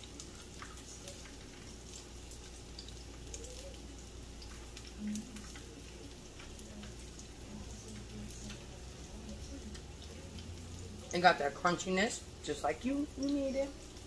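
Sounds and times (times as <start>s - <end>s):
vegetables frying in oil: 0.0s - 14.0s.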